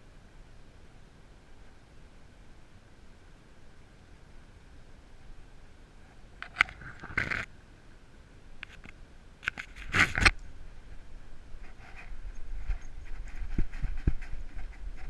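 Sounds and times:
camera rig scraping and clicking: 0:06.4 - 0:07.5, 0:08.6 - 0:10.4, 0:11.6 - 0:15.0.

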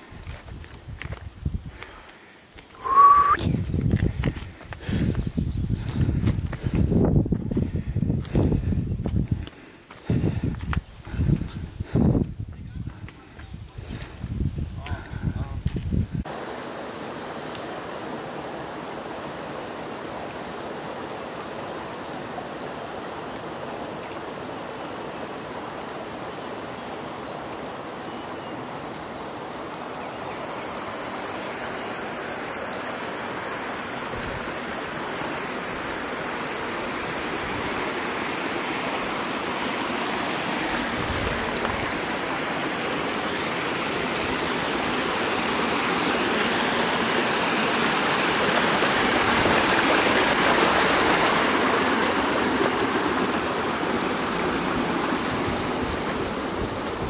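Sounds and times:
stream water rushing: 0:02.7 - 0:03.4, 0:16.2 - 0:57.0.

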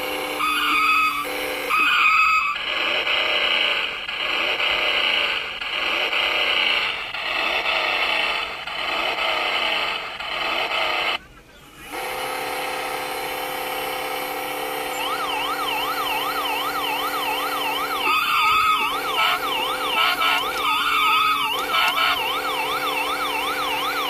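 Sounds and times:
warbling toy siren: 0:00.0 - 0:05.8, 0:11.8 - 0:24.0
electronic engine drone: 0:00.0 - 0:24.0
electronic tones: 0:14.8 - 0:24.0.

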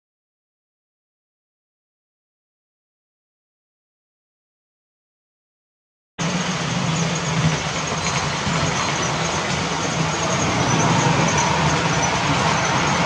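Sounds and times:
model train running on track: 0:06.2 - 0:13.0.

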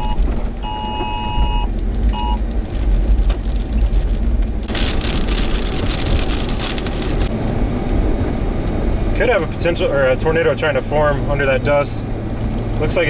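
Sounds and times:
two-tone emergency alert signal: 0:00.0 - 0:02.4
low vehicle rumble: 0:00.0 - 0:13.0.

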